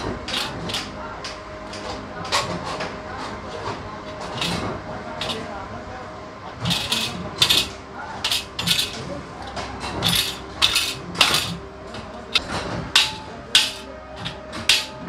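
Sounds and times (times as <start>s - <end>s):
metal ladder parts knocking: 0.2s - 0.9s, 4.2s - 5.5s, 6.6s - 15.0s.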